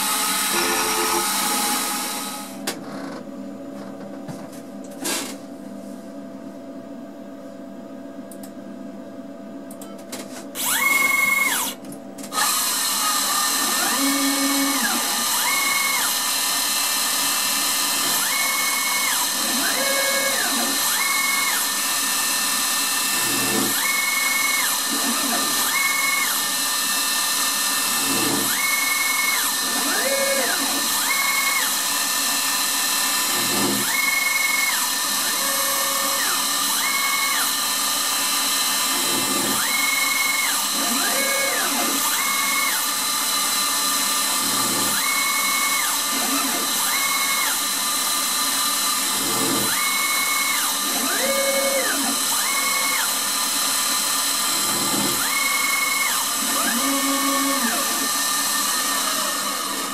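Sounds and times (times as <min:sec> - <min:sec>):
spindle cutting whine: 0:49.1 - 0:59.9.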